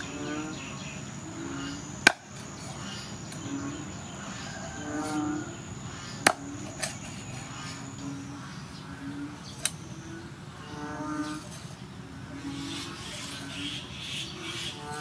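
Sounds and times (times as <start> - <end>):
high insect drone: 0.0 - 15.0
cleaver chopping into wooden block: 2.1 - 2.3, 6.2 - 6.9.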